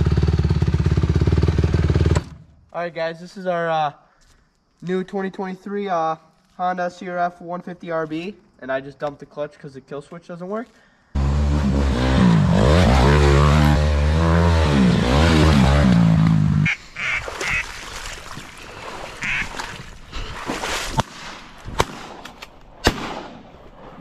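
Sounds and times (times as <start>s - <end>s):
dirt bike engine revving: 0.0s - 2.4s, 11.2s - 17.7s
ducks quacking: 16.6s - 18.1s, 18.7s - 19.9s
sharp cracks: 20.9s - 24.0s.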